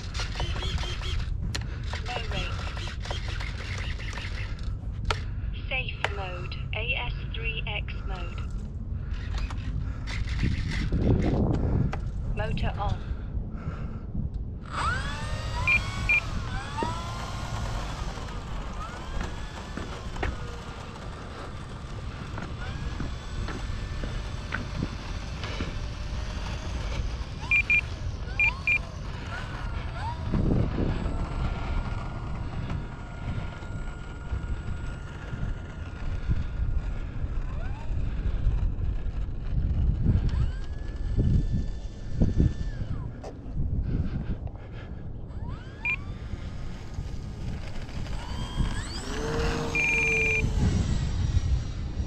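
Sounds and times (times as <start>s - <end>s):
thin whine: 0.0s - 52.0s
wind rumble on microphone: 0.0s - 52.0s
short high beeps: 27.5s - 27.8s, 49.7s - 50.4s.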